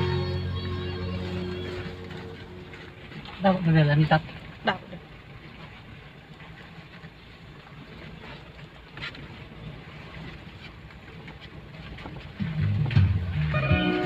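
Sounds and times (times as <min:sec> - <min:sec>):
engine and tyre rumble: 0:12.2 - 0:14.0.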